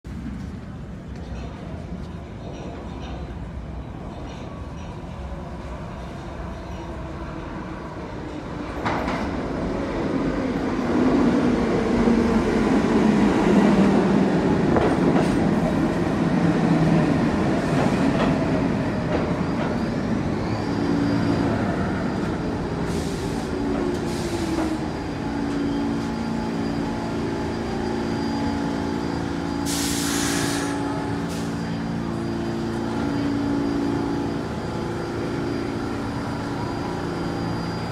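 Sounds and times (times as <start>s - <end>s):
subway train wheels rumbling: 0.0s - 37.9s
train humming: 0.1s - 37.9s
air hiss: 29.6s - 31.6s.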